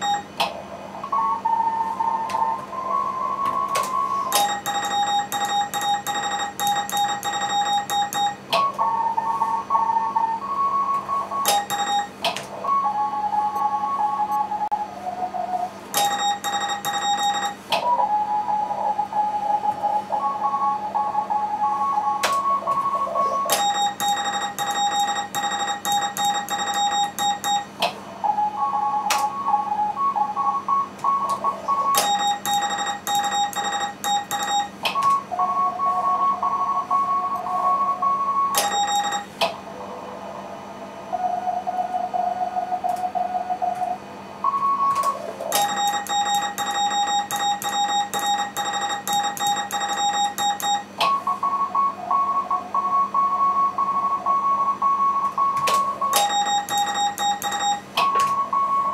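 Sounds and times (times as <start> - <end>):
morse code keyed tones: 0.0 - 0.4, 3.5 - 14.6, 16.0 - 17.7, 19.6 - 27.8, 28.5 - 39.4, 44.5 - 58.9.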